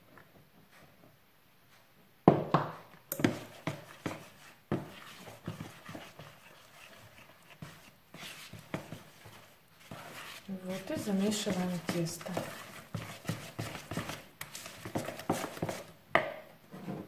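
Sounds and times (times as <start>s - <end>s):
dough squishing by hand: 2.4s - 16.5s
spoon scraping plastic bowl: 3.1s - 15.9s.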